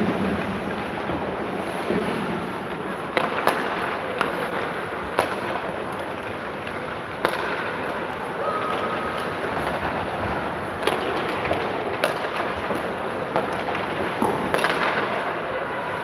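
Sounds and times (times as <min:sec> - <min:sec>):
skating hiss: 0:00.0 - 0:08.3
arena noise: 0:00.0 - 0:16.0
hockey sticks and puck clacking: 0:00.0 - 0:16.0.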